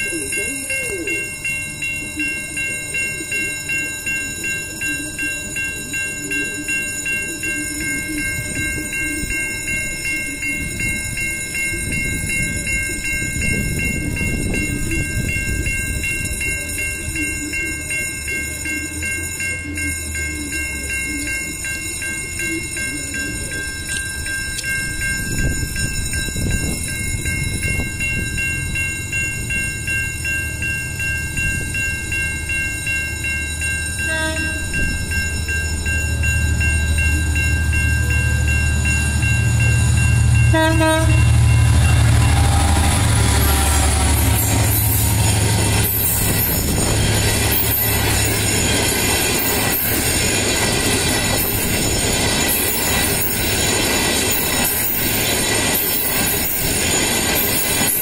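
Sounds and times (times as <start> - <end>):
level-crossing warning bell ringing: 0.0 - 58.0
low train rumble: 0.0 - 58.0.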